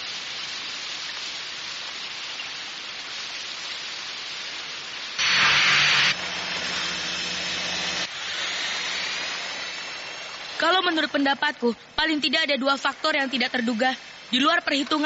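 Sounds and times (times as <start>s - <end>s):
steady hissing noise: 0.0s - 15.0s
low motor hum: 5.2s - 9.2s
rushing burst: 5.2s - 10.9s.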